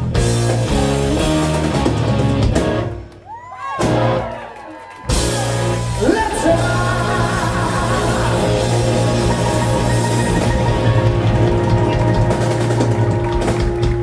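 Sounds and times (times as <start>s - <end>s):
steady bass line: 0.0s - 3.1s, 5.1s - 14.0s
live rock band playing: 0.0s - 4.4s, 5.0s - 14.0s
lead electric guitar bending notes: 5.1s - 14.0s.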